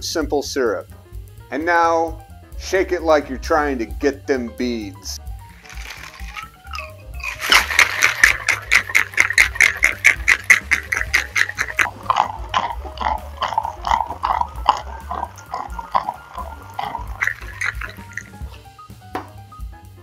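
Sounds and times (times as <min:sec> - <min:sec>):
ice rattling in cocktail shaker: 0:05.5 - 0:18.6.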